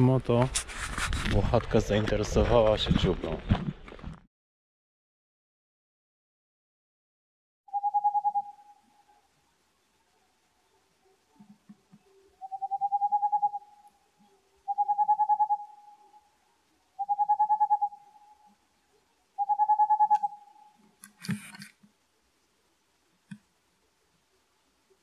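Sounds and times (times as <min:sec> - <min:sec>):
owl hooting: 0:07.7 - 0:09.3, 0:12.0 - 0:20.8.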